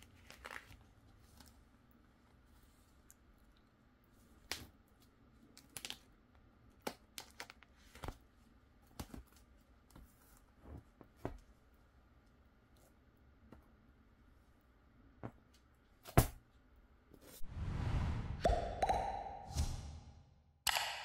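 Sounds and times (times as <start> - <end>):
plastic pages crinkling: 0.1 - 1.5.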